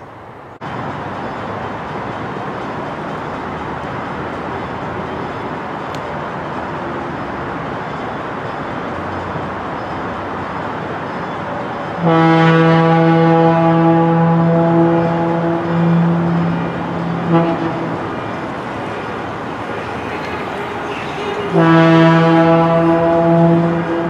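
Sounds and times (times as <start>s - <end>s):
diesel locomotive rumbling: 0.0s - 24.0s
train air horn chord: 12.0s - 18.2s, 21.4s - 24.0s.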